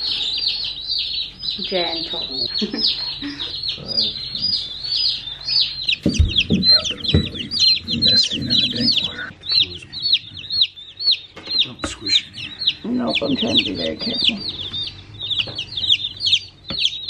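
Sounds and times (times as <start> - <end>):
baby chicks peeping: 0.0 - 17.0
low thumps: 5.8 - 17.0.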